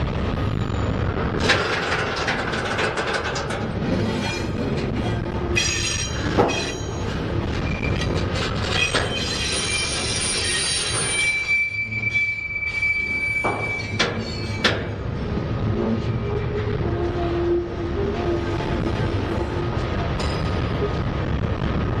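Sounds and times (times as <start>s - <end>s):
train wheels rumbling on rail: 0.0s - 22.0s
knocks and clanks: 1.3s - 10.4s, 13.3s - 15.2s
high-pitched wheel squeal: 4.0s - 14.9s.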